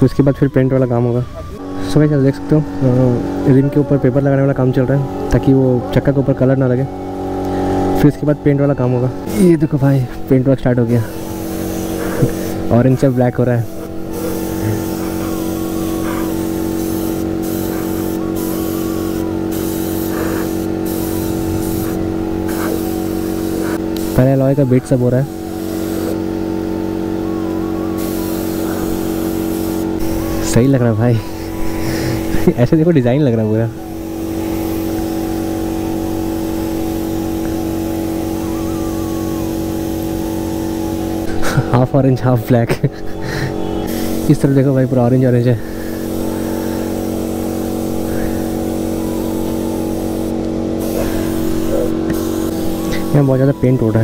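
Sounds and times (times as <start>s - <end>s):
steady low hum: 0.0s - 54.0s
spray gun hissing: 10.8s - 41.6s, 42.9s - 53.6s.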